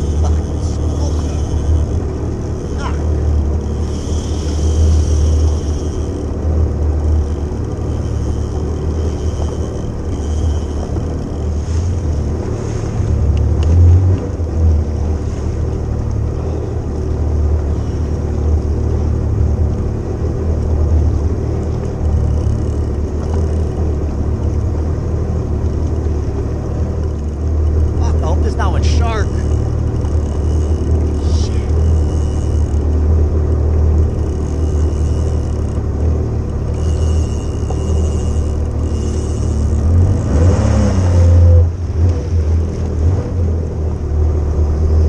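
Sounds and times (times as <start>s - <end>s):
sea water rushing: 0.0s - 18.2s, 27.8s - 43.6s.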